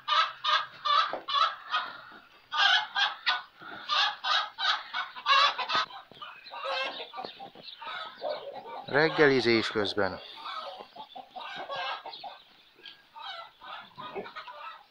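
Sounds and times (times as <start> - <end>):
fowl harsh calls: 7.8 - 12.2.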